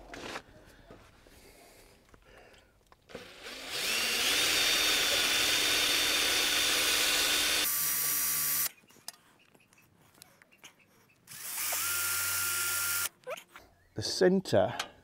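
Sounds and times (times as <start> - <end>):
electric drill whining: 3.1 - 8.7, 11.3 - 13.2.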